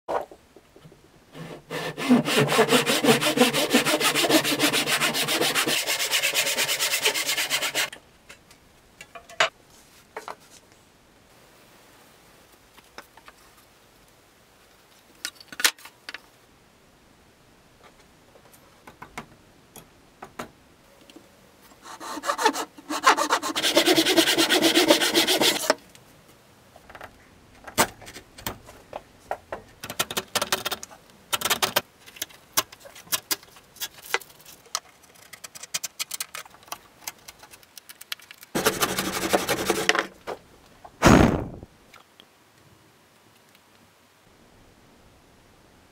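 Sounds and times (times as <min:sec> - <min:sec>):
hand saw cutting wood: 0:01.3 - 0:07.9, 0:21.8 - 0:25.8, 0:38.6 - 0:40.1.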